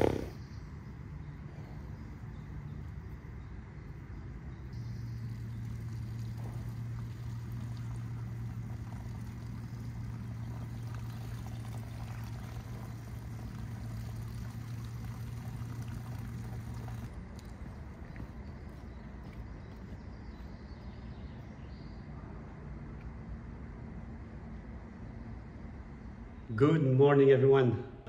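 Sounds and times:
steady low hum: 0:00.0 - 0:28.0
horse drinking water: 0:05.1 - 0:18.3.

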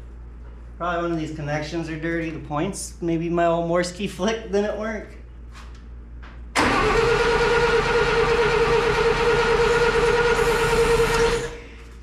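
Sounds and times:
engine cranking on starter: 0:06.6 - 0:11.6.

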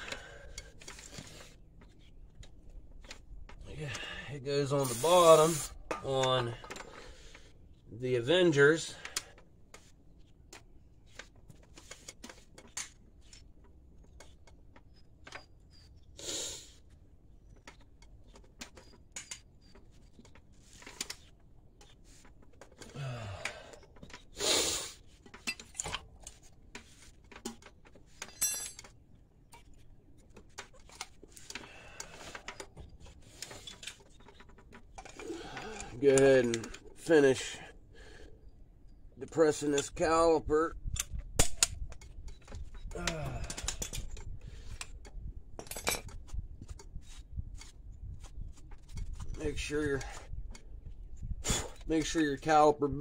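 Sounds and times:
metal tools clinking: 0:25.4 - 0:26.3, 0:27.4 - 0:29.8, 0:45.6 - 0:46.2.

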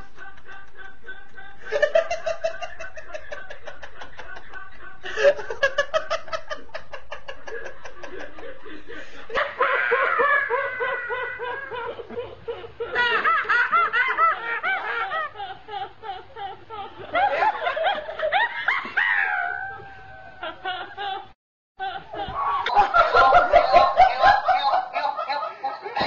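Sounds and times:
squealing laughs: 0:09.3 - 0:26.0.

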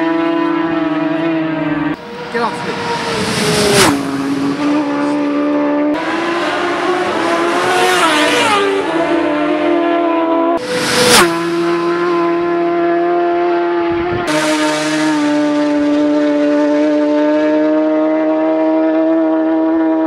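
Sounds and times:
racing motorcycles at high revs: 0:00.0 - 0:20.0.

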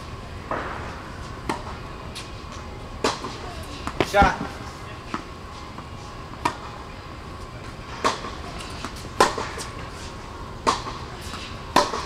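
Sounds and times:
tennis ball struck by rackets: 0:00.5 - 0:02.3, 0:03.0 - 0:05.2, 0:08.0 - 0:09.7, 0:10.6 - 0:12.0.

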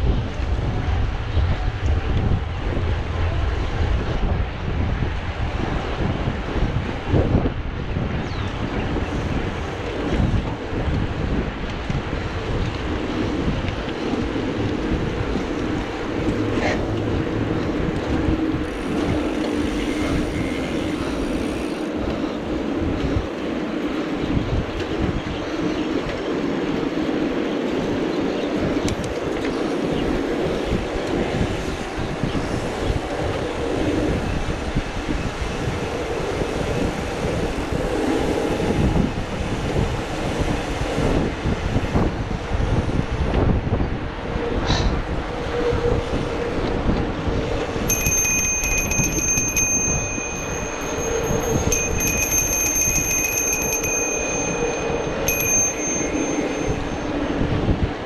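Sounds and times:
bike rolling on asphalt: 0:00.0 - 0:58.0.

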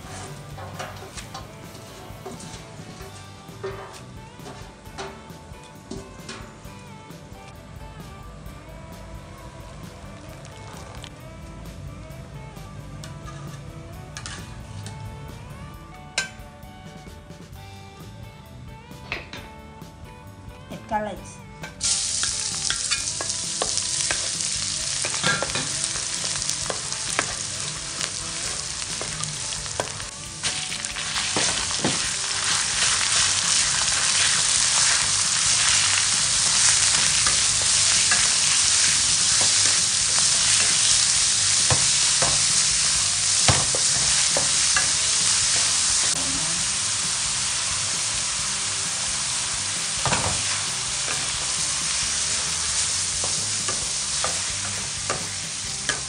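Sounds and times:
spatula scraping a wok: 0:00.0 - 0:05.4, 0:13.1 - 0:14.9, 0:21.7 - 0:56.0
pork sizzling in a wok: 0:00.0 - 0:06.8, 0:21.7 - 0:56.0.

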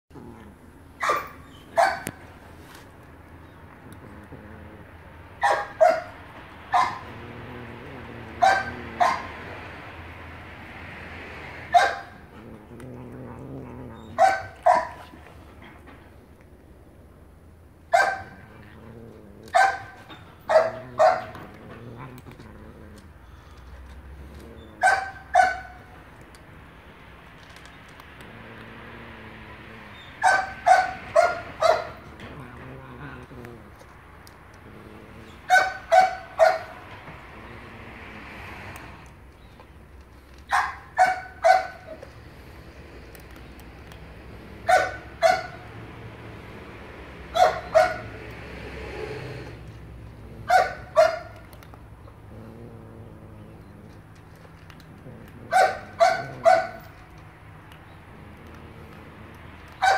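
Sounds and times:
dog barking: 0:01.0 - 0:02.2, 0:05.4 - 0:07.1, 0:08.4 - 0:09.4, 0:11.7 - 0:12.2, 0:14.1 - 0:15.1, 0:17.9 - 0:18.4, 0:19.5 - 0:21.4, 0:24.8 - 0:25.9, 0:30.2 - 0:32.0, 0:35.5 - 0:36.8, 0:40.5 - 0:41.9, 0:44.6 - 0:45.7, 0:47.3 - 0:48.2, 0:50.4 - 0:51.4, 0:55.5 - 0:56.9.

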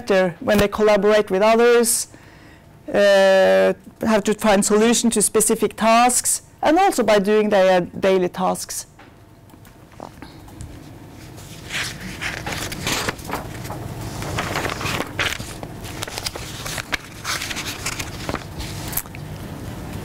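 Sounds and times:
paper rustling: 0:10.8 - 0:19.1.

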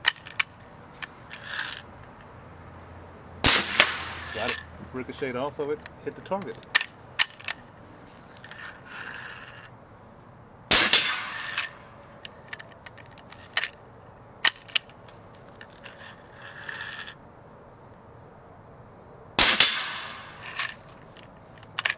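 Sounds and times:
air cannon blast: 0:03.4 - 0:04.5, 0:10.7 - 0:11.6, 0:19.4 - 0:20.3
sharp metallic clicks: 0:19.4 - 0:21.9.

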